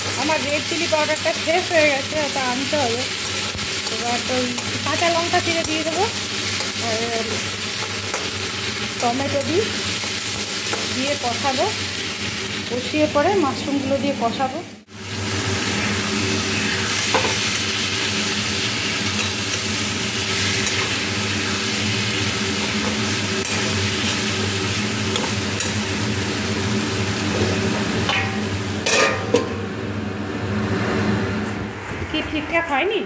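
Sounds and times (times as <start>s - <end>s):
food sizzling in a pan: 0.0s - 29.4s
metal lid clanking: 27.4s - 29.6s.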